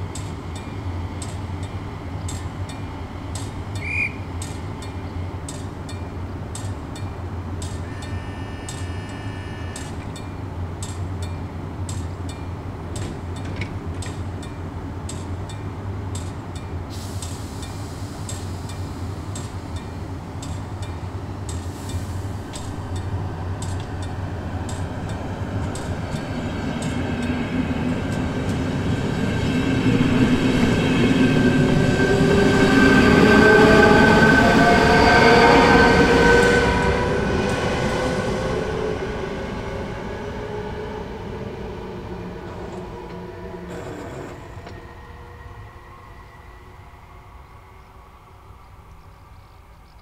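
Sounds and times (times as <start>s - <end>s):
train motors whining: 7.6s - 10.3s, 41.0s - 46.4s.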